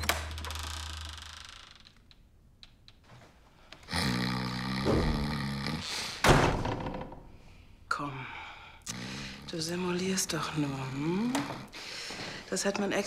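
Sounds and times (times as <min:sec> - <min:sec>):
man snoring: 0:03.9 - 0:06.1.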